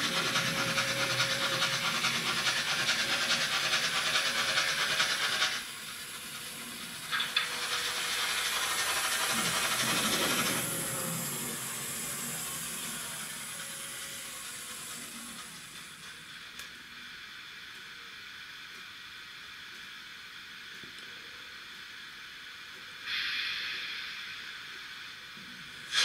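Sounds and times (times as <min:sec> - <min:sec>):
steam locomotive hiss from speaker: 0:00.0 - 0:16.2, 0:23.0 - 0:26.0.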